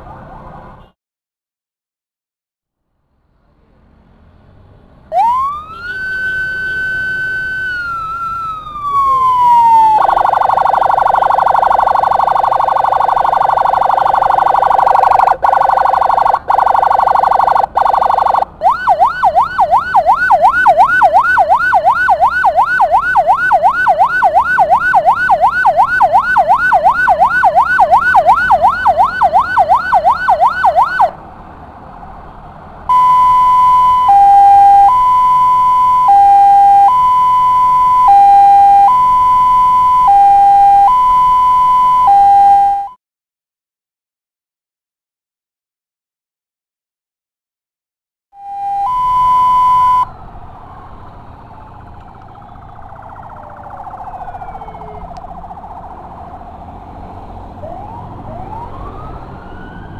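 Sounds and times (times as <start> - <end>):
ambulance siren wailing and yelping: 5.1 - 31.2, 32.9 - 43.0, 48.4 - 59.9.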